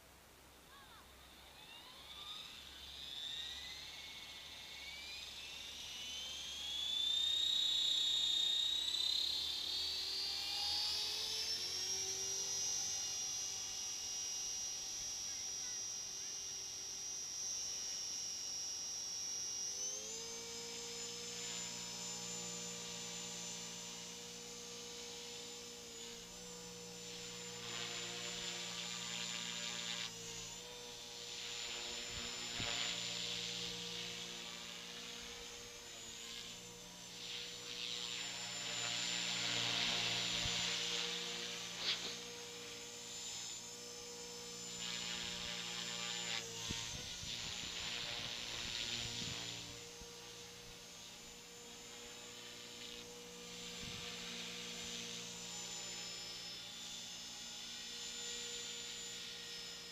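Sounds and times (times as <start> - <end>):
rc helicopter motor whine: 0.0 - 59.9.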